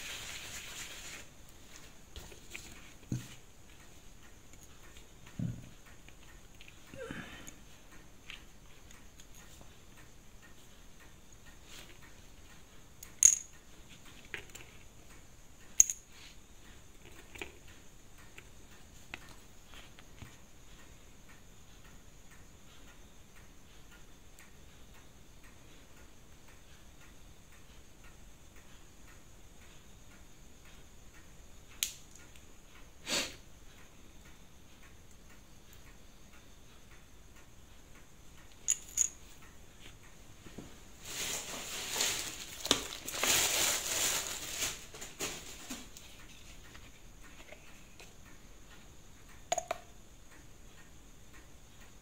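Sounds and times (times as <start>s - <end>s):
faint room hiss: 0.0s - 52.0s
metal parts clicking on bench: 13.0s - 13.6s, 38.5s - 39.2s
clinking and rustling: 38.6s - 39.3s.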